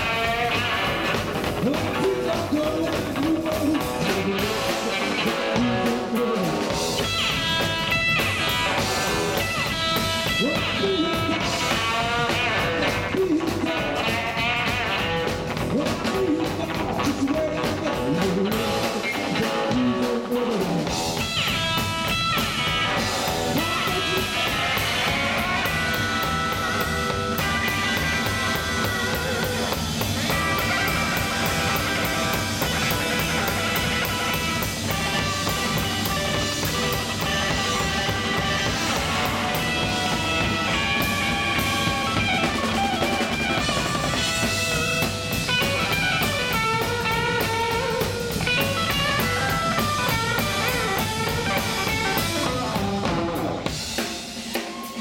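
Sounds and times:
drum kit: 0:00.0 - 0:55.0
electric guitar lead runs: 0:06.7 - 0:17.0, 0:20.9 - 0:54.0.

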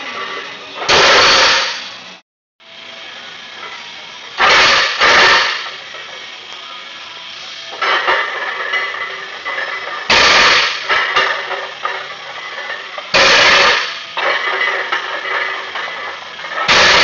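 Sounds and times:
barbell plates crashing on mats: 0:00.8 - 0:01.8, 0:04.4 - 0:05.7, 0:07.8 - 0:17.0
faint music: 0:02.6 - 0:16.7.

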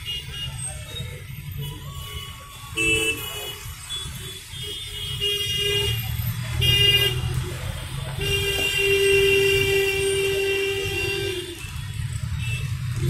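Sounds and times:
vehicle horns honking: 0:00.0 - 0:07.3, 0:08.2 - 0:13.0
road traffic rumbling: 0:00.0 - 0:13.0.

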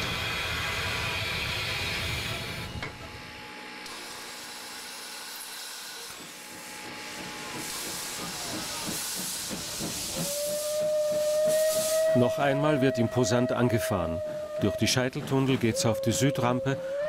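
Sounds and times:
steam hissing from locomotives: 0:00.0 - 0:02.8, 0:07.0 - 0:12.6
drain cocks blowing off steam: 0:08.2 - 0:12.2
steam whistle blast: 0:10.1 - 0:14.8.

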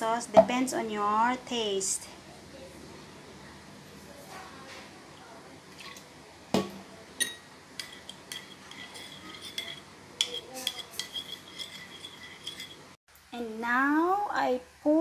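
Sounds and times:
metal spoon stirring in ceramic bowl: 0:07.2 - 0:13.0.

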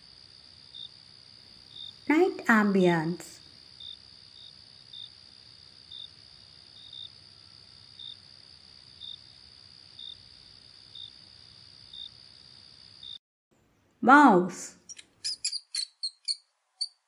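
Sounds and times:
cricket chirp: 0:00.0 - 0:02.1, 0:03.0 - 0:13.2, 0:14.9 - 0:17.0
crickets trilling: 0:00.0 - 0:02.1, 0:03.4 - 0:13.2.

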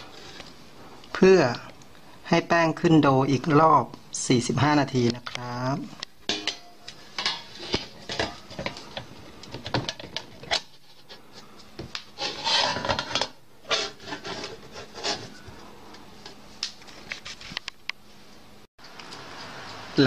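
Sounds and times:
metal scraping on metal: 0:06.3 - 0:08.8, 0:12.2 - 0:15.4.

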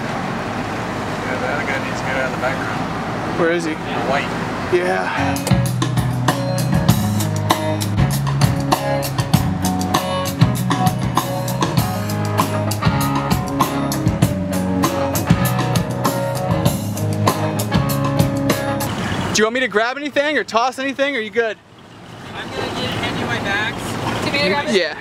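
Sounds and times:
drum kit beat: 0:04.9 - 0:18.9
rock band playing: 0:05.1 - 0:18.9.

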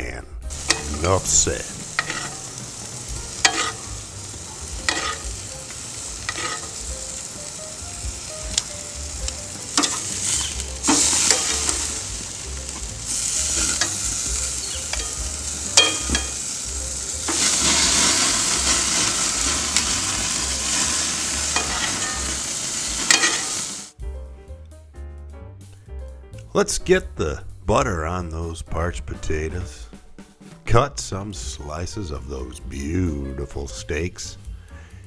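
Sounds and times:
music: 0:00.0 - 0:35.0
steak sizzling in a skillet: 0:00.5 - 0:24.0
metal tongs clicking on pan: 0:00.6 - 0:00.9, 0:03.4 - 0:03.8, 0:04.9 - 0:05.2, 0:09.3 - 0:11.8, 0:14.6 - 0:15.2, 0:15.8 - 0:16.4, 0:23.1 - 0:23.5.

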